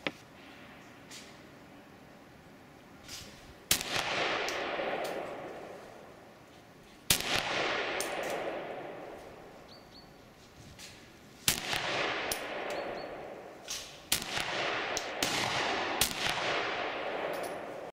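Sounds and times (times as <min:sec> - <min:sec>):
rifle shots with echo: 0:03.7 - 0:06.3, 0:07.1 - 0:09.6, 0:11.5 - 0:17.9
light metallic tinks: 0:17.2 - 0:17.8.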